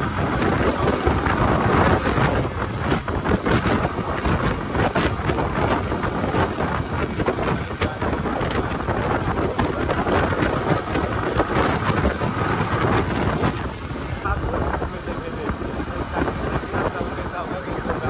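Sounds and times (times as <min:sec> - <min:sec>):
loud wind rush on microphone: 0:00.0 - 0:18.0.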